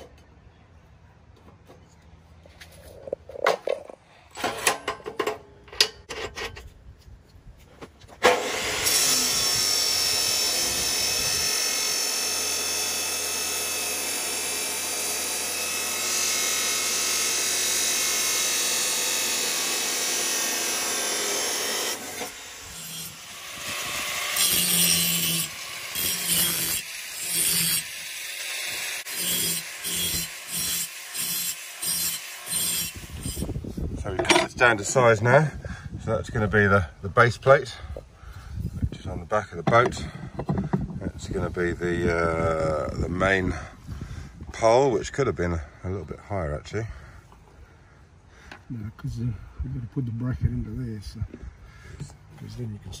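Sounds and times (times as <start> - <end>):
chop saw cutting steel: 8.2 - 33.6
angle grinder grinding metal: 8.2 - 35.2.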